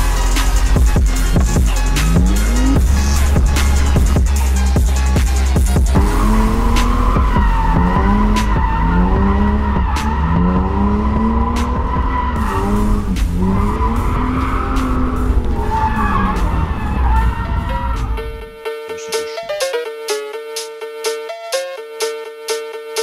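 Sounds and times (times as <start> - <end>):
car engine revving: 0.0 - 18.6
tyres squealing: 5.9 - 19.7.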